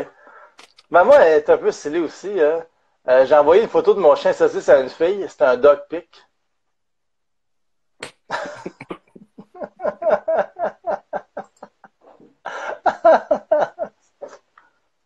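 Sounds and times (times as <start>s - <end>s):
men laughing hard: 8.3s - 14.4s.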